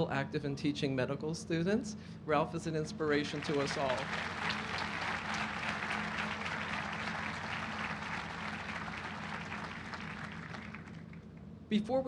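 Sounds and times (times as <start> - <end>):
audience applauding: 3.3 - 11.2.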